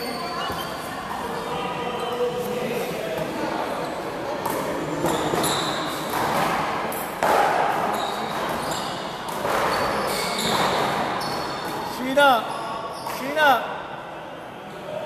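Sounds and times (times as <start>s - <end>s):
handball hitting wall and floor: 4.4s - 11.9s.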